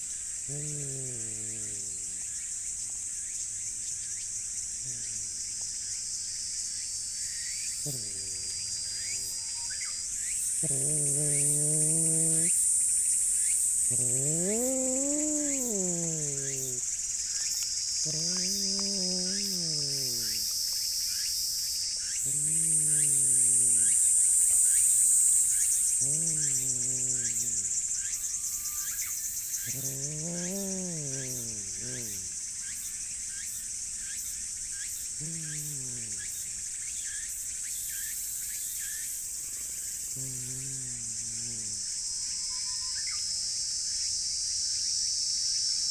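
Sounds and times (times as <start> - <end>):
insect chorus: 0.0 - 45.9
cat growling: 0.5 - 2.3, 4.8 - 5.4, 7.8 - 9.5, 10.6 - 12.7, 13.7 - 16.9, 18.0 - 20.6, 22.2 - 28.0, 29.5 - 32.4, 35.2 - 36.6, 39.5 - 41.9.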